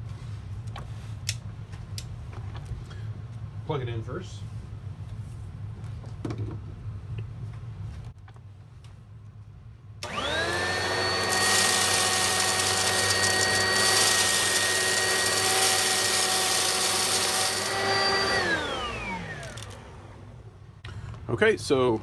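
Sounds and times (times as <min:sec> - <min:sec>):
vacuum cleaner motor whine: 0:10.0 - 0:20.5.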